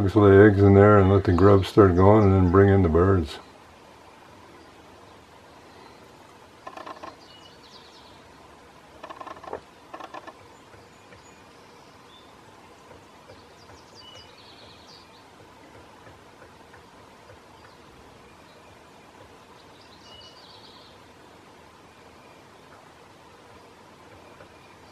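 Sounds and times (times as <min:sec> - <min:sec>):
faint songbird chirps: 0:00.0 - 0:24.9
woodpecker pecking on wood: 0:06.6 - 0:07.3, 0:08.9 - 0:11.3, 0:12.8 - 0:17.8.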